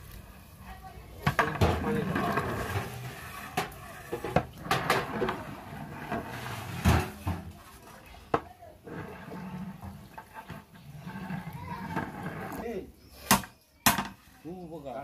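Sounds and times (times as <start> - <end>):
metal ladle scraping a pot: 1.2 - 8.1, 8.8 - 13.4.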